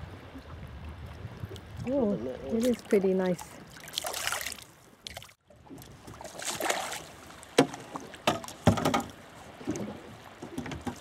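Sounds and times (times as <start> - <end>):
fish splashing in water: 2.5 - 5.4, 6.0 - 9.2
sharp knock on boat: 7.6 - 9.1.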